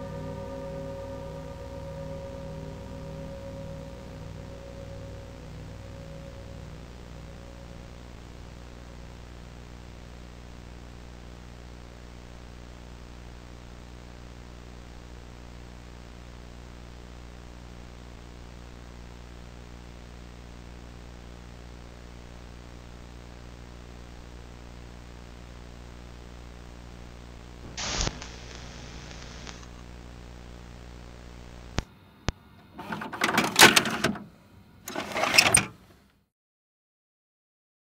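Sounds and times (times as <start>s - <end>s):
low steady drone: 0.0s - 11.1s
harsh noise bursts: 27.6s - 29.8s.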